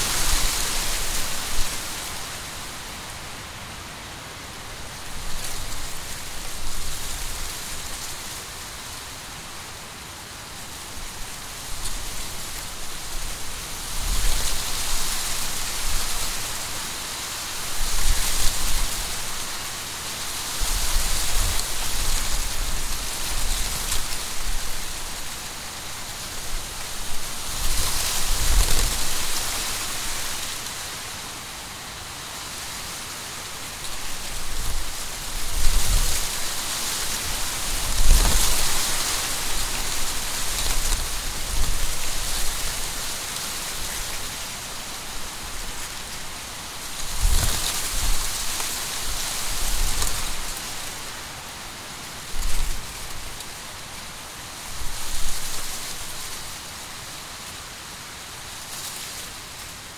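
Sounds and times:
dry corn leaves rustling in wind: 0.0s - 59.9s
wind rumble on microphone: 34.0s - 43.2s, 47.0s - 50.6s.

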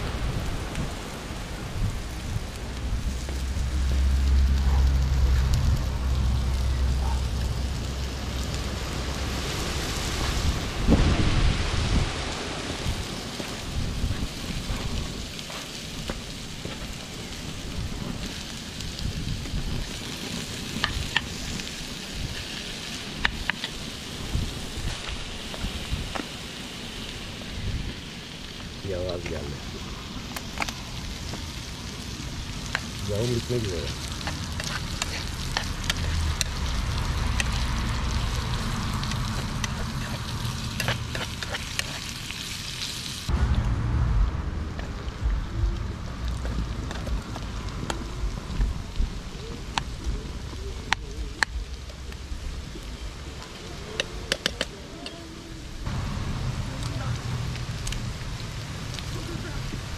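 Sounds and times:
low rumble: 0.0s - 15.4s, 43.2s - 53.4s
meat sizzling in a pan: 0.0s - 43.3s.

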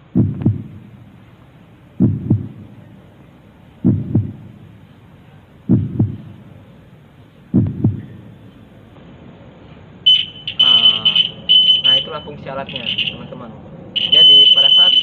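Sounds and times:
heartbeat double thump: 0.0s - 1.0s, 2.0s - 2.8s, 3.8s - 4.7s, 5.7s - 6.5s, 7.5s - 8.4s.

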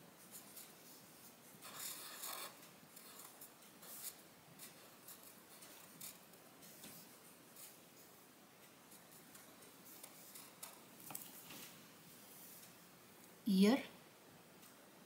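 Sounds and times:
marker scratching on paper: 0.3s - 7.8s.

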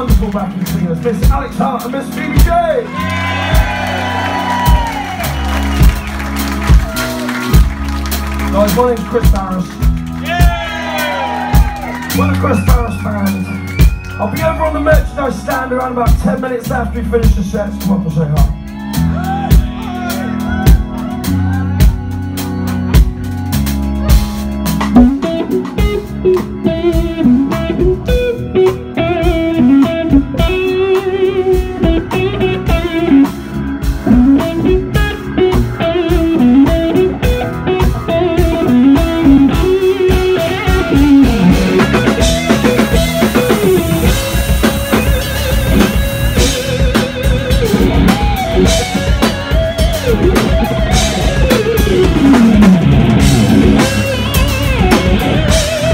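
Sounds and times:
bass guitar: 0.0s - 55.9s
drums: 0.0s - 55.9s
electric guitar bending in pitch: 23.8s - 55.9s.

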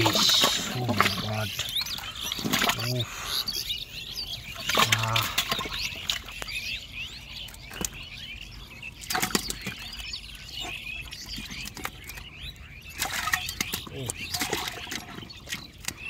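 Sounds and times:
fish thrashing in water: 0.0s - 3.1s, 4.5s - 6.4s, 9.0s - 16.0s.

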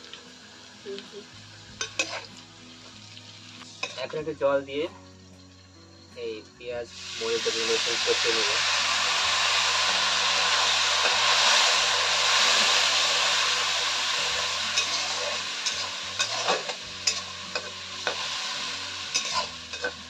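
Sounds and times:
hot oil hissing and sizzling: 0.0s - 20.0s
metal spatula scraping wok: 1.8s - 2.3s, 3.8s - 4.2s, 14.1s - 20.0s.

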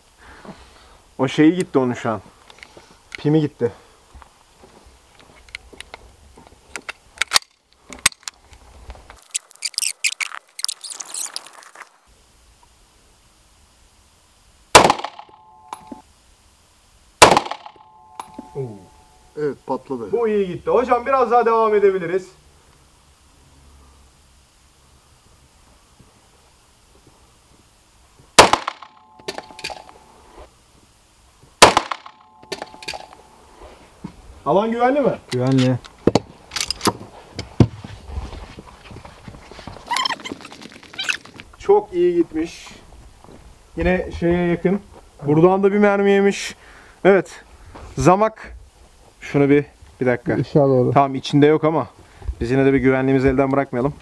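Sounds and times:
pistol shots: 14.7s - 15.4s, 17.2s - 18.0s, 28.4s - 29.7s, 31.6s - 33.1s
metallic clinks and ring: 17.8s - 19.2s.

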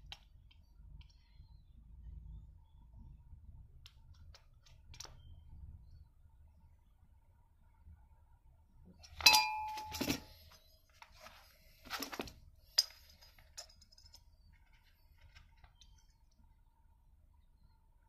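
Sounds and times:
metal parts rattling: 11.9s - 16.1s
metal parts clinking: 12.0s - 16.1s.

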